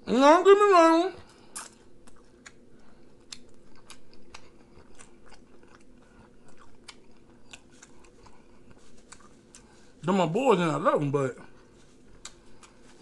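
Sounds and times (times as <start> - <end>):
person chewing food: 1.2 - 10.0, 11.4 - 13.0.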